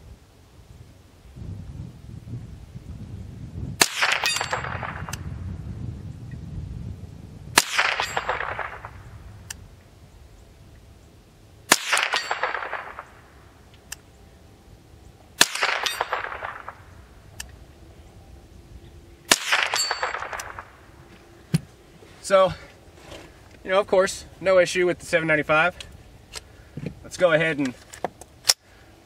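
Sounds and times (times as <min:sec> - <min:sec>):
rifle shots cracking: 0:03.8 - 0:05.3, 0:07.6 - 0:09.2, 0:11.7 - 0:13.7, 0:15.4 - 0:17.5, 0:19.3 - 0:21.0.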